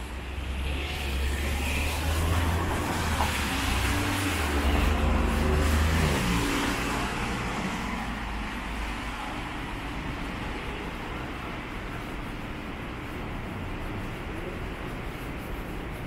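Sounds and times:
vehicle engine rumble passing: 0:00.0 - 0:12.4
street traffic noise: 0:00.0 - 0:16.0.

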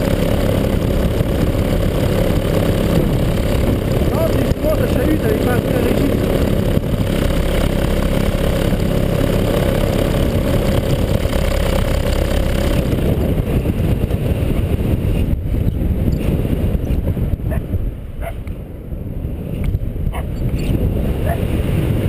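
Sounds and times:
paramotor engine running: 0:00.0 - 0:17.6
wind rushing past microphone: 0:00.0 - 0:22.0.

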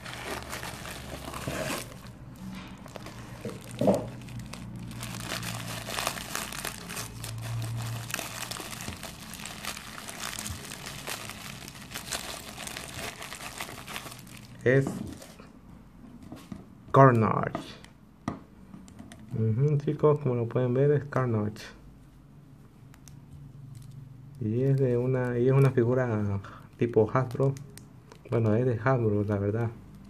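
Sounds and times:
bubble wrap and paper crinkling: 0:00.0 - 0:15.4.

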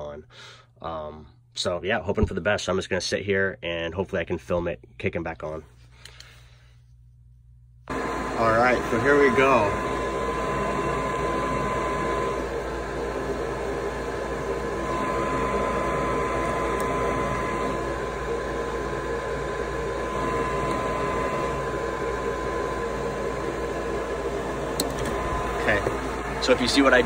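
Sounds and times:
furnace motor whining: 0:07.8 - 0:27.0.

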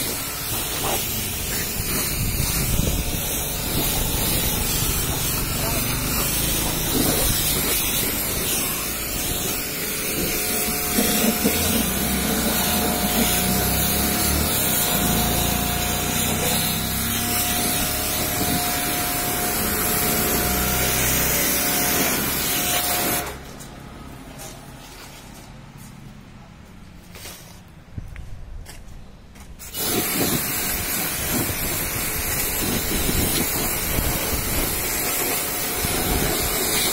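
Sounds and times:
pressure washer spraying water: 0:00.0 - 0:23.5, 0:29.6 - 0:36.9.

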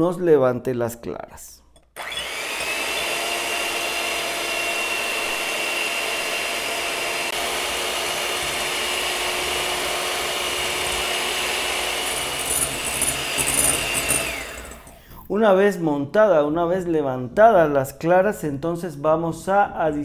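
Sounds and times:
electric mixer motor whine: 0:02.0 - 0:15.0
beaters whisking in glass bowl: 0:02.3 - 0:15.0.

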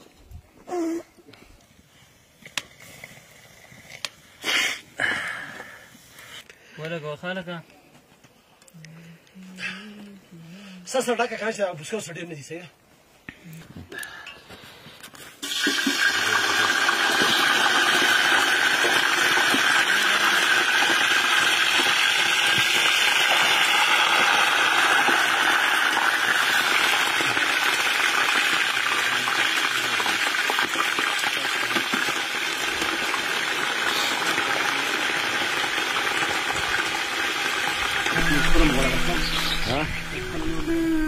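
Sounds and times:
meat sizzling in hot oil: 0:15.4 - 0:39.6.

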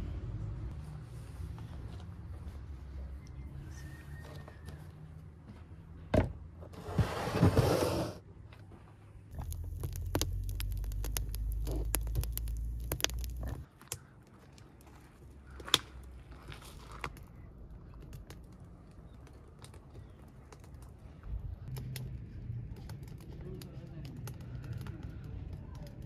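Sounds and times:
wood fire crackling and popping: 0:09.3 - 0:16.2, 0:16.8 - 0:26.0.

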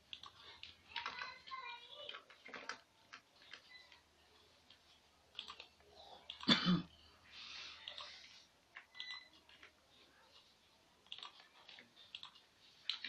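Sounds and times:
computer mouse clicks: 0:00.0 - 0:04.0, 0:04.7 - 0:06.5, 0:07.8 - 0:09.8, 0:10.4 - 0:13.0
person coughing: 0:06.4 - 0:07.0.

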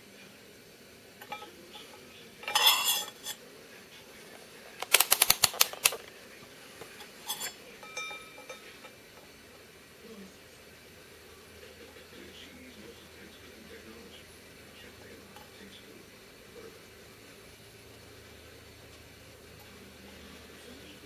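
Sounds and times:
metal clinks: 0:01.2 - 0:03.4, 0:07.0 - 0:09.0
sharp clicks: 0:04.8 - 0:06.1
brief ring: 0:07.3 - 0:08.7.

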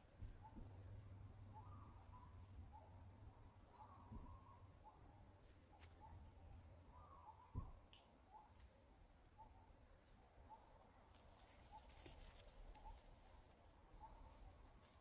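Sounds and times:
faint animal chirps: 0:01.4 - 0:03.0, 0:03.7 - 0:09.7.

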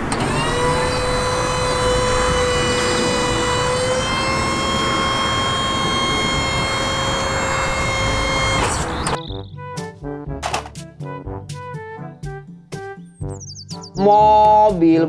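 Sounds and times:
hydraulic whine: 0:00.0 - 0:09.4.

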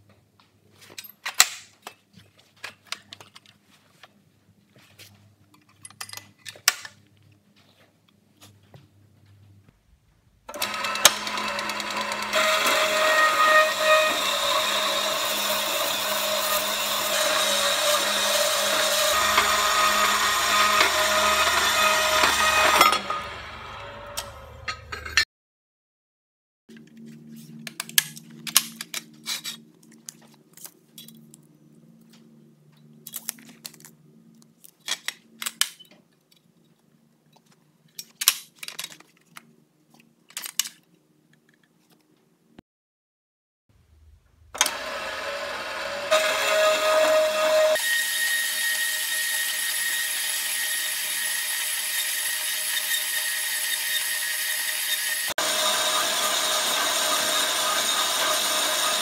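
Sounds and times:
band saw cutting steel: 0:10.5 - 0:25.2, 0:44.5 - 0:59.0.

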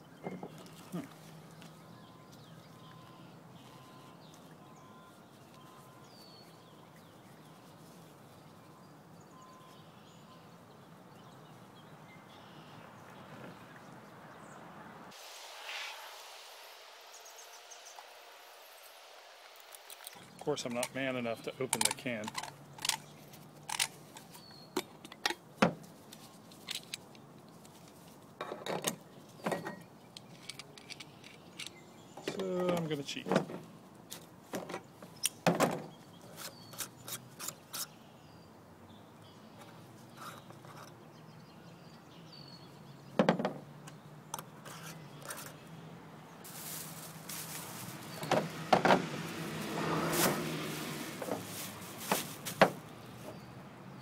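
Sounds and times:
faint bird chirps: 0:00.0 - 0:13.8
outdoor background hiss: 0:00.0 - 0:54.0
faint high tone: 0:01.9 - 0:06.1.

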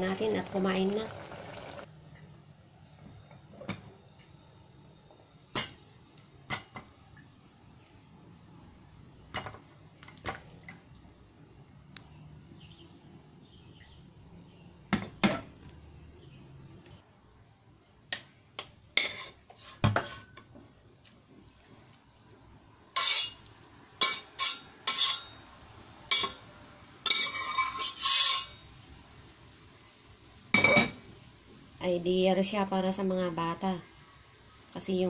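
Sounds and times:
metal spoon clinking on pot: 0:23.0 - 0:23.4, 0:24.0 - 0:25.4, 0:27.0 - 0:28.6.

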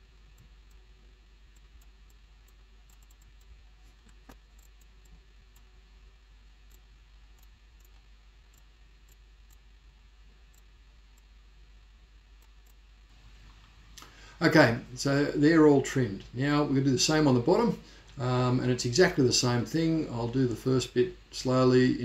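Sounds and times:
low room hiss: 0:00.0 - 0:22.0
computer mouse clicks: 0:01.5 - 0:05.7.

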